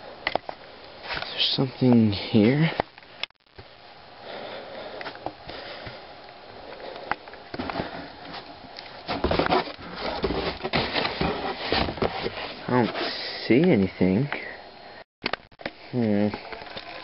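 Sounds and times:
cardboard box flaps rustling: 9.0 - 13.0.

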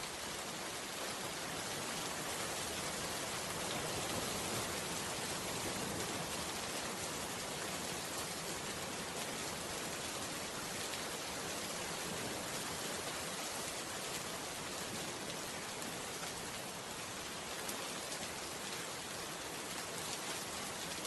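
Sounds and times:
rain falling: 0.0 - 21.0.

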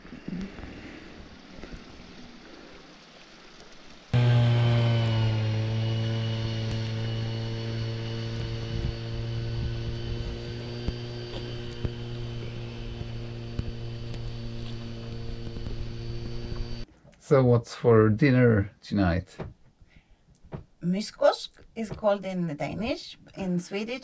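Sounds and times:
steady motor hum: 4.2 - 16.9.

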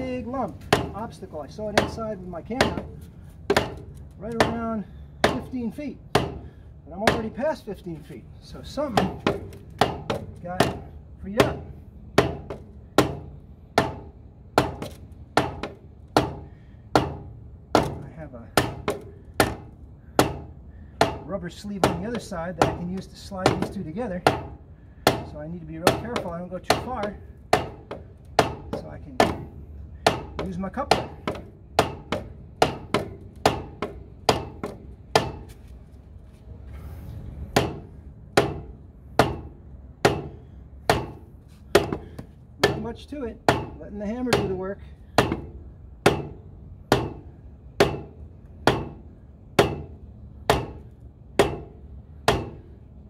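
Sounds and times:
rubber mallet striking pipe: 0.7 - 1.0, 2.6 - 4.6, 6.2 - 6.4, 8.9 - 18.0, 18.6 - 35.5, 37.6 - 42.9, 43.5 - 44.6, 45.2 - 49.0, 49.6 - 52.6.

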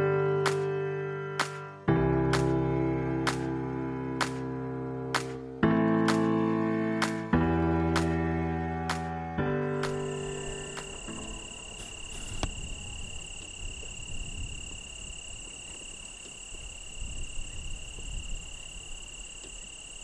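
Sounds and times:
insects shrill drone: 9.7 - 20.0.

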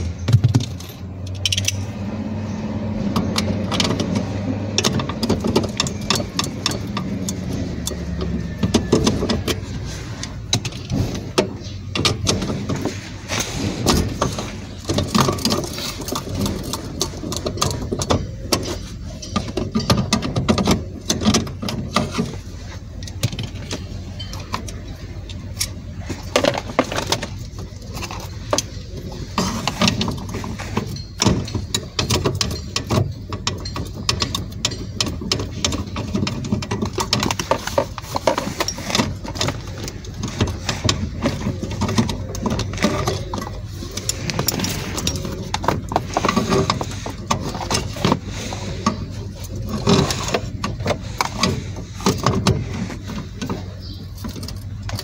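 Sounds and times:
metal tool clinks and knocks: 0.0 - 1.9, 23.0 - 48.2.

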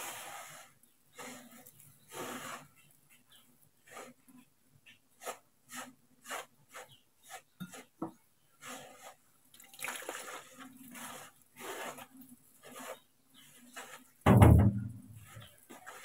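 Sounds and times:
hands mixing dough in bowl: 0.0 - 16.0
water trickling onto dough: 8.6 - 14.3, 15.2 - 16.0.

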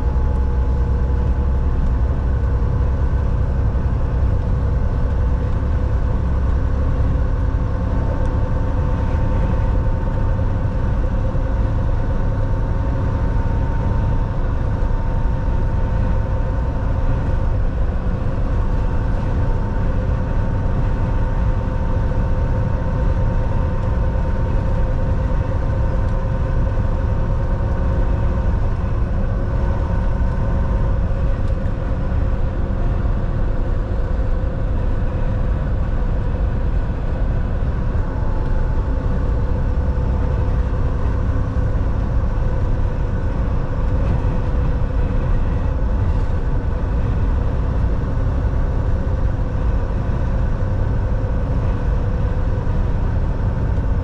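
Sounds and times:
truck diesel engine drone: 0.0 - 54.0.

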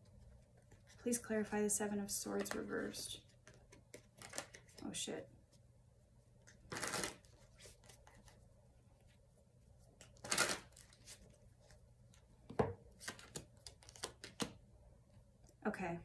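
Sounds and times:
cards shuffling: 2.4 - 4.8, 6.4 - 8.4, 10.0 - 11.4, 12.9 - 14.6.

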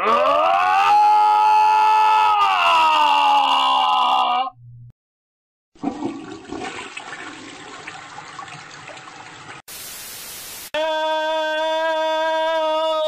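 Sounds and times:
toilet flushing: 5.8 - 9.7
static-like hiss: 9.7 - 10.7.

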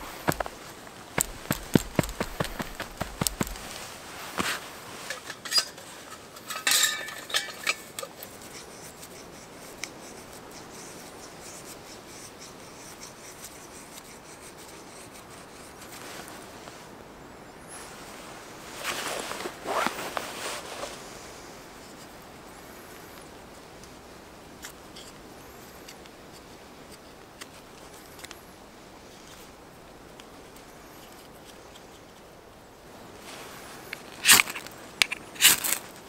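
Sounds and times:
knife shaving wood: 0.0 - 5.3, 7.9 - 16.0, 33.4 - 36.0
sharp knocks and handling: 0.0 - 8.4
quiet steady hiss: 0.0 - 36.0.

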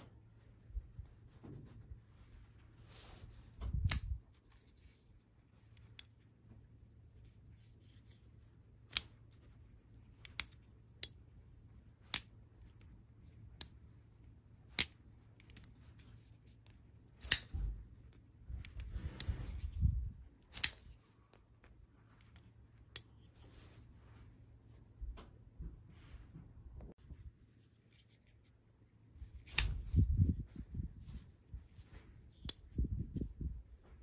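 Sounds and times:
rustling handling noise: 0.0 - 34.0
folding knife blade clicking: 3.8 - 4.2, 20.5 - 20.8.

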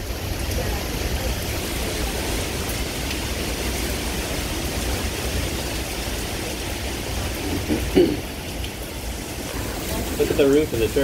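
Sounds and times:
heavy rain: 0.0 - 11.0.

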